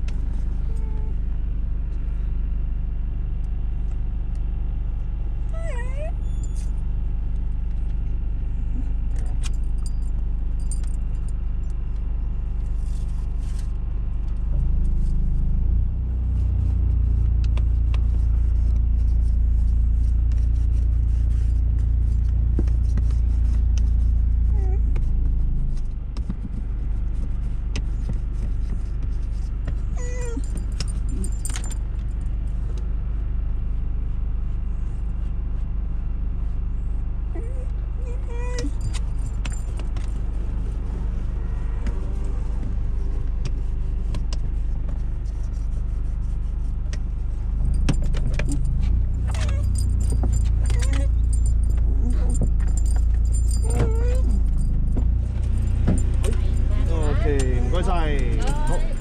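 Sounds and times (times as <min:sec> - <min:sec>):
dog whining: 0:05.4 - 0:06.7, 0:24.5 - 0:25.0, 0:29.8 - 0:31.4, 0:37.4 - 0:39.2, 0:49.2 - 0:59.0
car cabin rumble: 0:11.8 - 0:32.8, 0:37.3 - 0:59.0
light metallic jingling: 0:30.0 - 0:31.8, 0:47.6 - 0:59.0.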